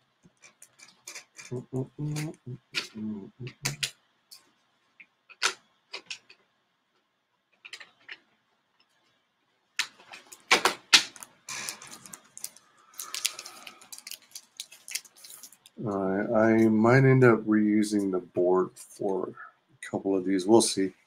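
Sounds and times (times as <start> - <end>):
plastic bag crinkling: 10.0 - 16.0.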